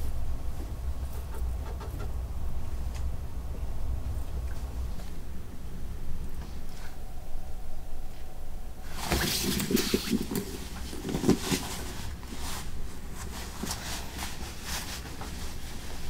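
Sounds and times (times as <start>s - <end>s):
steady low hum: 0.0s - 16.0s
bags rustling and knocking: 8.9s - 15.8s.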